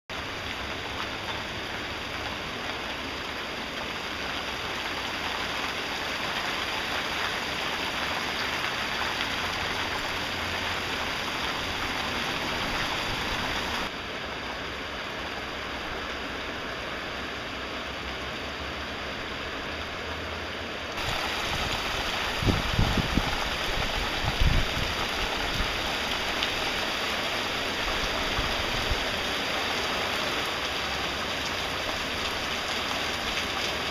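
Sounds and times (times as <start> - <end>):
heavy rain falling: 0.1 - 33.9.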